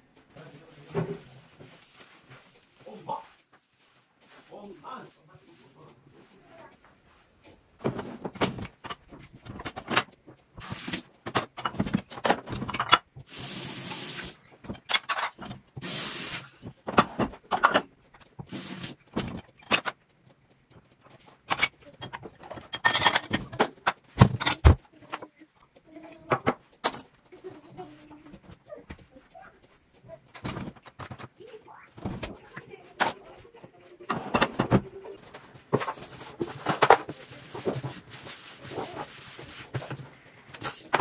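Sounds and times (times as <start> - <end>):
dishes and cutlery clinking: 14.6 - 15.6, 16.9 - 18.0, 19.1 - 20.0, 20.8 - 25.3, 30.3 - 31.4, 34.0 - 38.0, 40.6 - 41.0.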